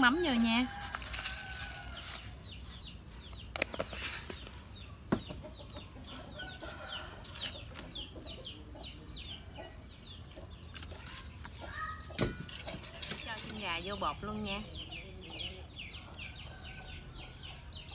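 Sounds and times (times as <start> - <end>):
birds chirping: 0.0 - 17.9.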